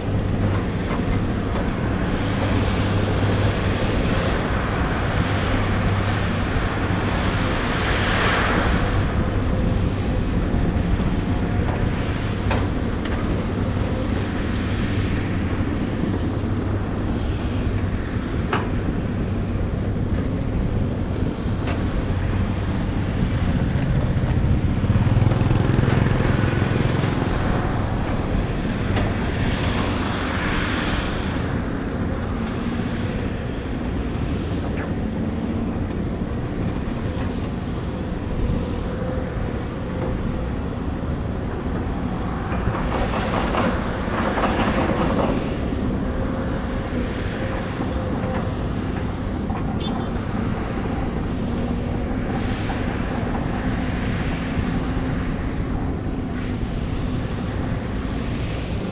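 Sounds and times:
diesel excavator engines running: 0.0s - 58.9s
rattling clattering machinery: 18.4s - 30.4s, 39.5s - 58.9s.

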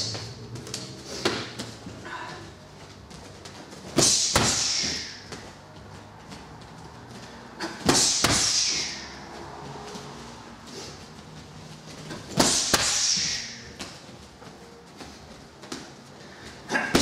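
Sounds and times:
kicks hitting a heavy bag: 3.9s - 5.2s, 7.8s - 8.9s, 12.2s - 13.5s.

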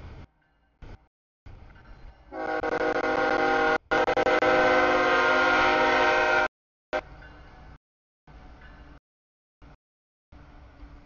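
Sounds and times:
locomotive air horn chord: 2.3s - 6.5s.

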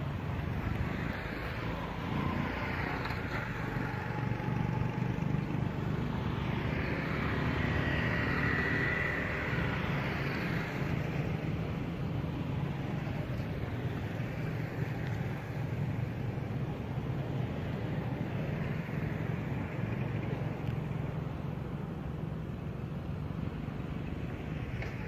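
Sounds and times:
road traffic noise: 0.0s - 25.0s
vehicle passing by: 0.8s - 12.0s.

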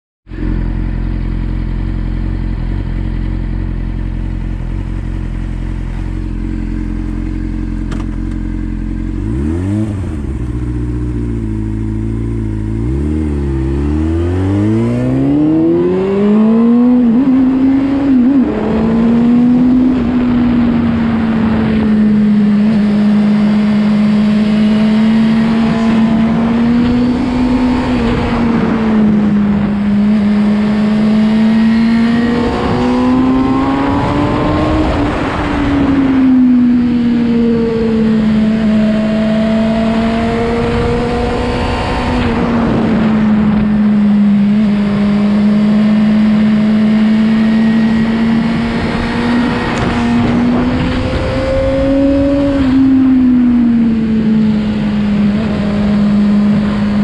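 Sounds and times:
motorcycle engine: 0.2s - 57.0s
wind noise: 12.4s - 57.0s.

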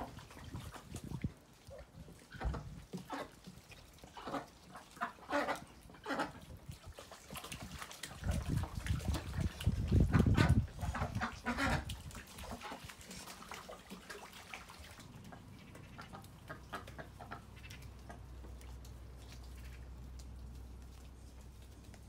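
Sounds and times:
ducks shuffling: 0.0s - 22.0s
quiet duck calls: 2.2s - 6.5s, 15.3s - 18.6s, 19.4s - 20.0s.

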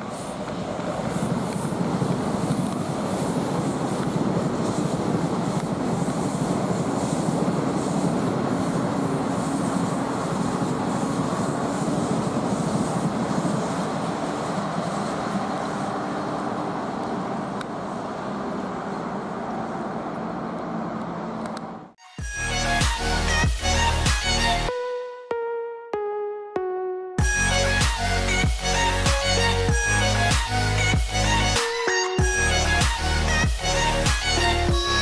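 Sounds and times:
train wheels rumbling on rails: 0.0s - 21.9s
music: 22.0s - 35.0s.

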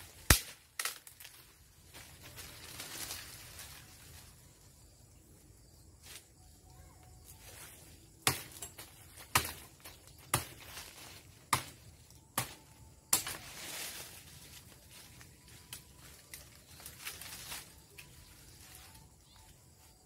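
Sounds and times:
blade chopping branches: 0.1s - 1.4s, 8.2s - 14.0s.

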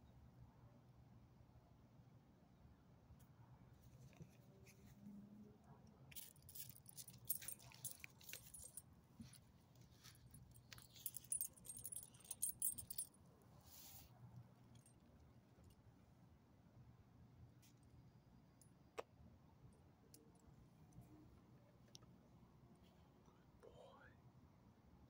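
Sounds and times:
dog collar tags jingling: 6.1s - 8.8s, 10.1s - 13.1s.

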